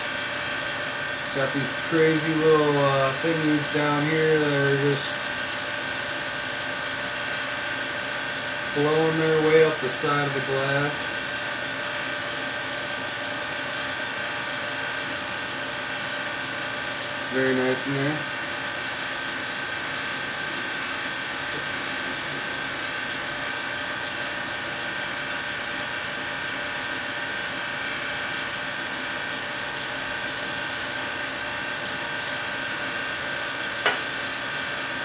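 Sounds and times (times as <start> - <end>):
tesla coil buzzing and hissing: 1.3 - 5.2, 8.8 - 11.2, 17.3 - 18.2, 33.8 - 34.9.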